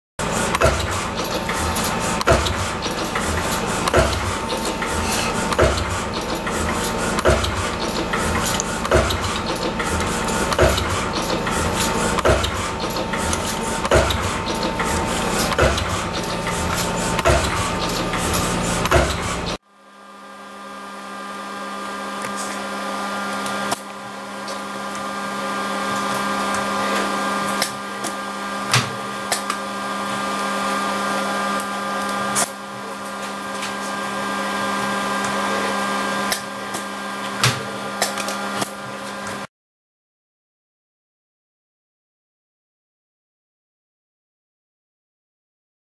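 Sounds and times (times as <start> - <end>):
machine hum: 0.2 - 19.6
wire-forming machine clacking: 0.2 - 19.6
machine clicks: 0.3 - 19.6.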